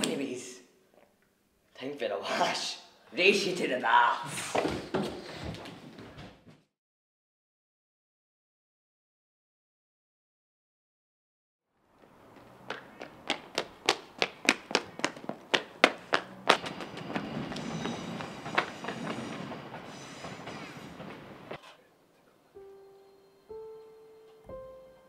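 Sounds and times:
soft piano notes: 0:21.6 - 0:25.0.

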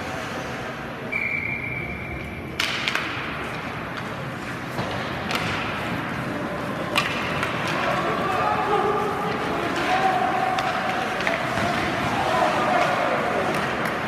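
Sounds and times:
puck and sticks knocking: 0:02.6 - 0:08.3, 0:09.2 - 0:14.0.

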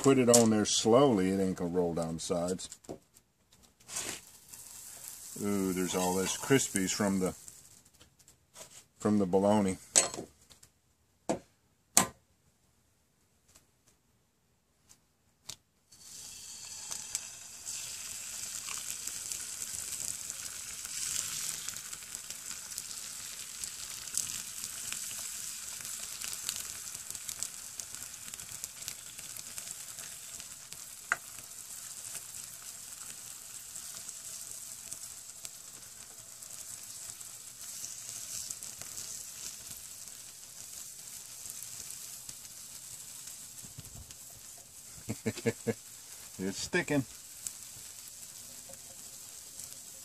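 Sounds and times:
egg sizzling with crackles: 0:00.0 - 0:10.8, 0:15.5 - 0:50.0
egg cracking clicks: 0:15.4 - 0:45.9.

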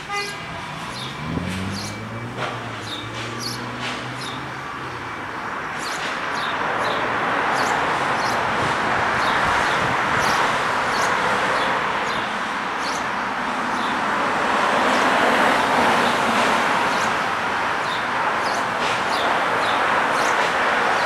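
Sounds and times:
small birds chirping: 0:00.9 - 0:02.1, 0:02.8 - 0:04.5, 0:05.7 - 0:08.5, 0:09.2 - 0:14.0, 0:16.9 - 0:21.0.

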